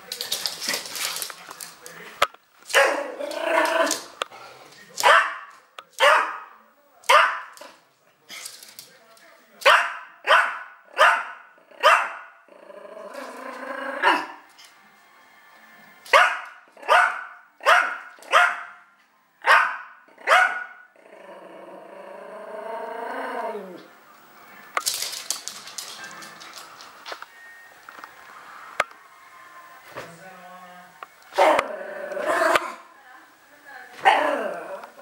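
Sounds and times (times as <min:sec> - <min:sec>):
dog barking: 0:02.8 - 0:03.1, 0:05.0 - 0:06.5, 0:07.1 - 0:07.5, 0:09.6 - 0:12.3, 0:16.1 - 0:18.8, 0:19.4 - 0:20.8
dog growling: 0:02.9 - 0:04.7, 0:12.5 - 0:14.2, 0:21.0 - 0:23.9, 0:31.5 - 0:32.8, 0:34.1 - 0:35.0.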